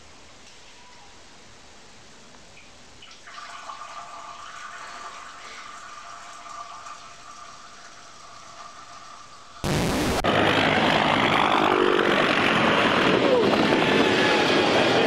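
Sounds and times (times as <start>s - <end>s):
cat urinating into toilet water: 3.0s - 9.6s.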